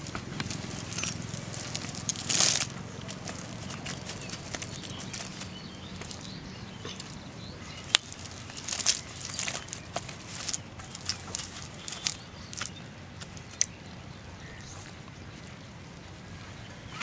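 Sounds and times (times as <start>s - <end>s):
fish flapping in net: 0.0s - 6.3s, 7.8s - 12.7s.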